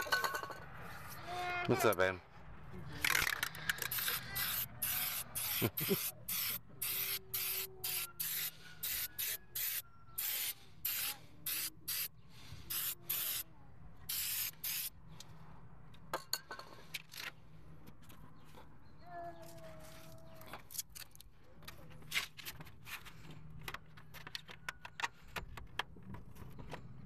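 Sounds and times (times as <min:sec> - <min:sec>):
spray paint can hissing: 0:03.8 - 0:13.4, 0:14.1 - 0:14.9.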